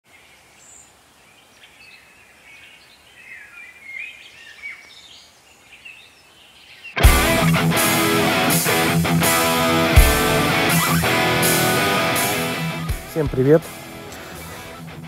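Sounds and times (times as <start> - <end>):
faint background hiss: 0.1 - 7.0
songbirds chirping and whistling: 0.1 - 7.0.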